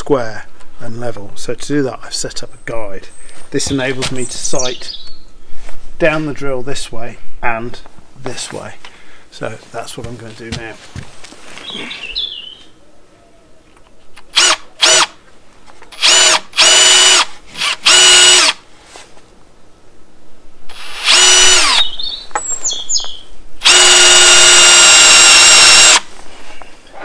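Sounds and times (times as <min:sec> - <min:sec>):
cordless drill whining: 0:14.3 - 0:15.1, 0:15.9 - 0:18.6, 0:20.7 - 0:21.9, 0:23.6 - 0:26.1.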